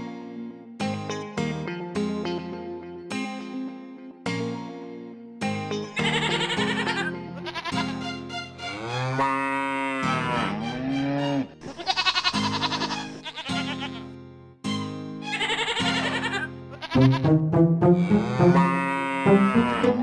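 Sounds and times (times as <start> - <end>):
background music: 0.0 - 20.0
farm animal calls: 8.6 - 14.0, 15.3 - 17.2, 18.0 - 20.0.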